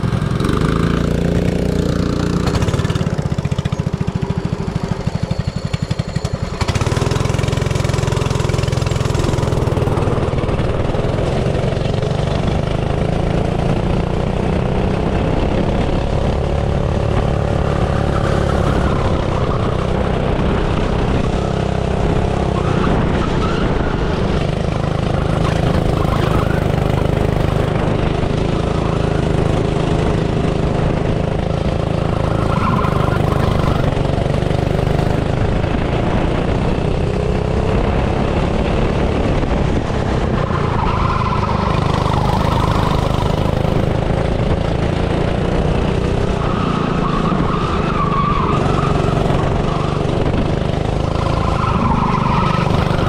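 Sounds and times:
kart engine revving: 0:00.0 - 0:53.0.

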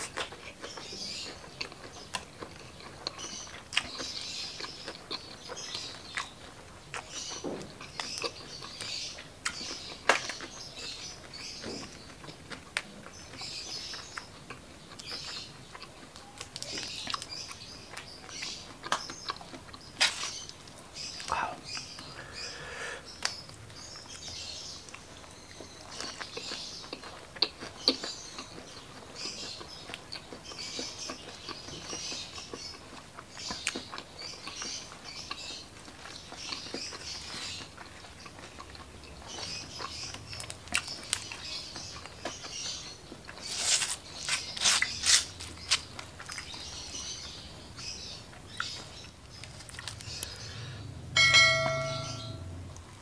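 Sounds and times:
wet chewing and mouth smacks: 0:00.0 - 0:22.1, 0:23.1 - 0:50.4
crunching of fried food: 0:00.0 - 0:50.8
short bright chime: 0:51.2 - 0:52.6.

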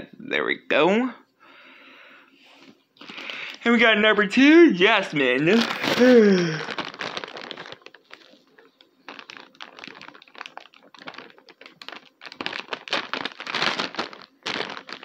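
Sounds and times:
plastic bag crinkling: 0:03.0 - 0:03.8, 0:05.0 - 0:15.0.

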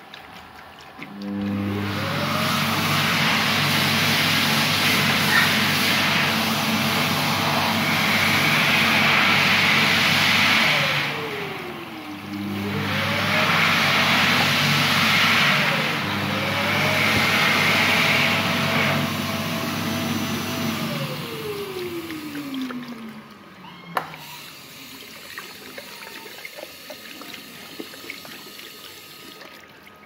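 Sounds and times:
hands rinsing: 0:00.0 - 0:03.3, 0:21.2 - 0:30.0
hand dryer blowing: 0:01.1 - 0:23.3, 0:23.9 - 0:29.4
tap water into basin: 0:21.6 - 0:30.0.

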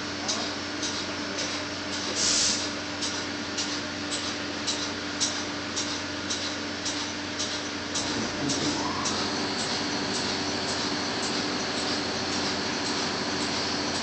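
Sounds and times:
machinery droning: 0:08.0 - 0:14.0.

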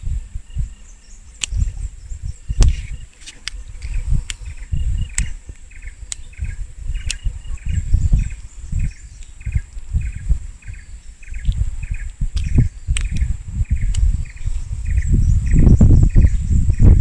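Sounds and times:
high insect drone: 0:00.0 - 0:17.0
short chirping calls: 0:00.4 - 0:17.0
sharp clicks near microphone: 0:01.4 - 0:01.8, 0:02.6 - 0:07.8, 0:11.3 - 0:14.4.

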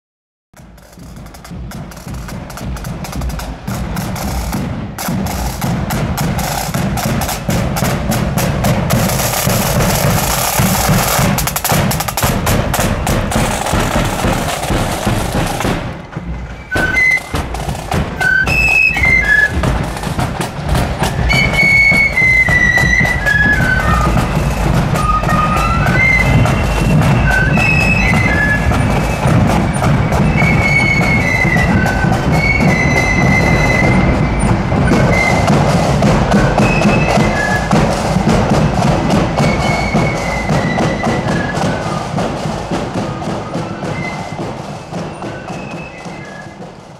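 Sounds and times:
bass drum beat: 0:00.6 - 0:21.6
snare drums rolling: 0:00.6 - 0:46.9
flute melody: 0:00.9 - 0:46.9.

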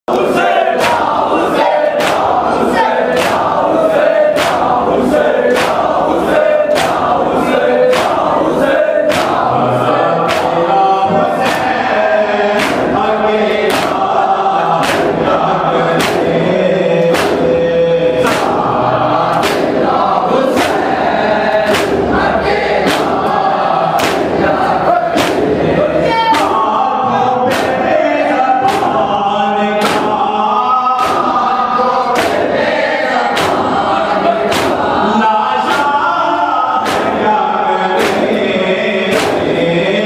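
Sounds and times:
crowd of men chanting: 0:00.1 - 0:40.0
men singing a lament: 0:00.1 - 0:40.0.

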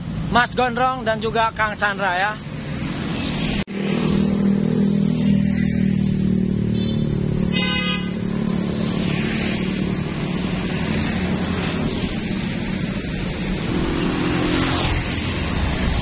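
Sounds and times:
vehicle horn tooting: 0:06.7 - 0:08.2.

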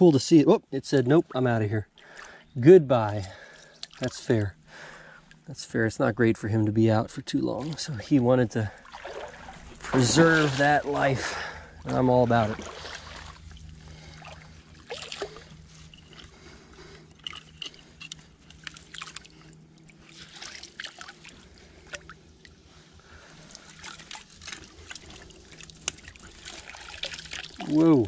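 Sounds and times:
creek water trickling: 0:00.2 - 0:28.0
splashes in water: 0:08.8 - 0:15.6, 0:23.6 - 0:28.0.

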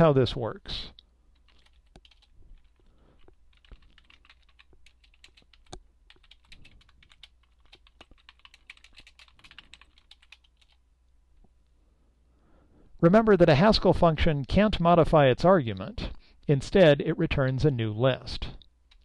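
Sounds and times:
faint typing on a keyboard: 0:00.9 - 0:10.8, 0:18.4 - 0:19.0.

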